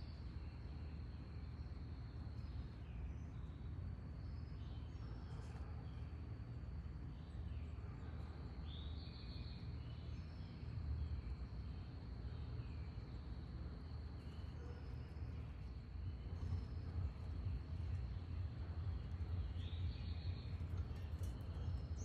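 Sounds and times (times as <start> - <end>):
steady low rumble: 0.0 - 22.0.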